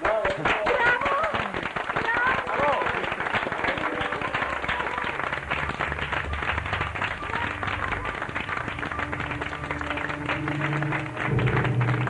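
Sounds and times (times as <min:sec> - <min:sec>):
people clapping and applauding: 0:00.0 - 0:12.0
soft music with low notes: 0:03.6 - 0:12.0.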